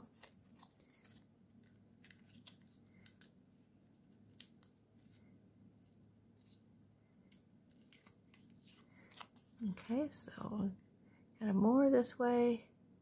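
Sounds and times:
paper clicks and rustles: 0.0s - 3.4s, 7.2s - 9.6s.

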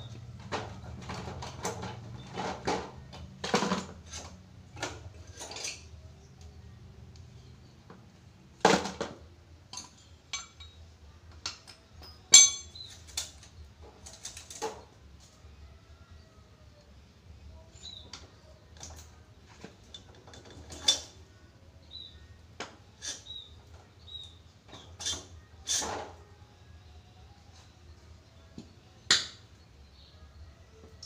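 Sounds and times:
metal tools clinking: 5.1s - 6.0s, 9.7s - 10.8s, 11.5s - 13.4s
metal clanks ringing: 9.8s - 10.8s, 11.6s - 12.9s.

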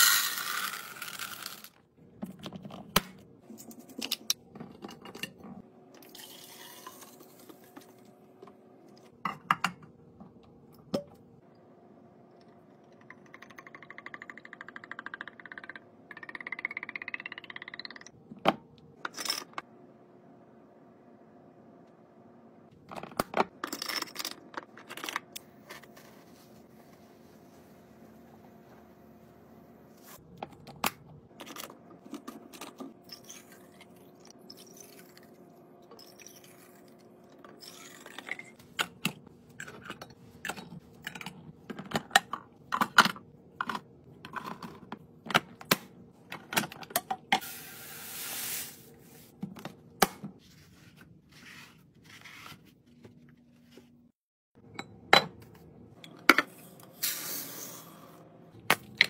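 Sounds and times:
beads pouring into glass pitcher: 0.0s - 1.8s.

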